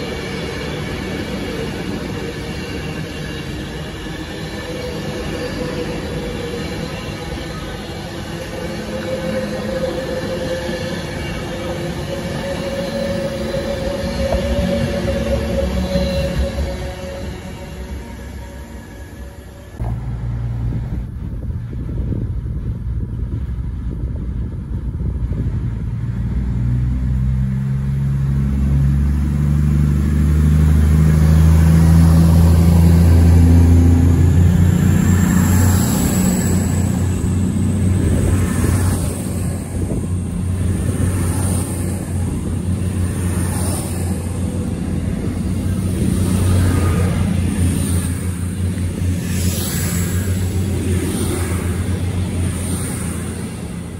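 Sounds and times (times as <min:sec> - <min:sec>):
train wheels rumbling on rail: 0:00.0 - 0:53.9
train motor hum rising in pitch: 0:04.4 - 0:20.8.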